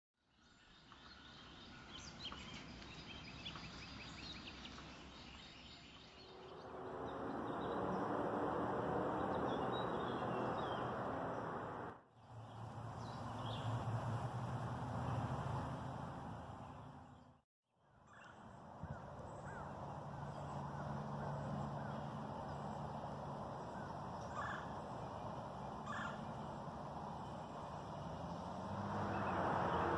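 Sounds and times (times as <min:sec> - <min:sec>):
small birds chirping: 0:09.0 - 0:13.8, 0:18.1 - 0:29.9.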